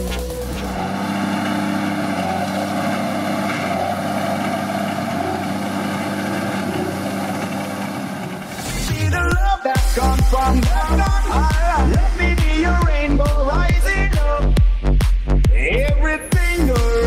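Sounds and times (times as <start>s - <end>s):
tractor engine under load: 0.0s - 9.3s.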